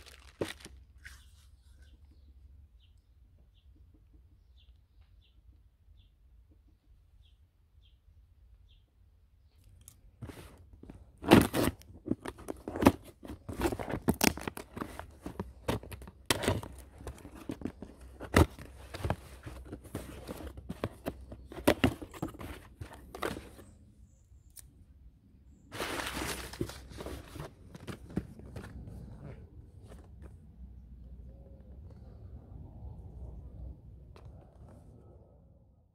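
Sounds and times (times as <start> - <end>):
packing paper rustling and crunching: 0.0 - 1.3, 11.2 - 23.6, 25.7 - 28.7
cardboard box knocking and scraping: 11.2 - 23.6.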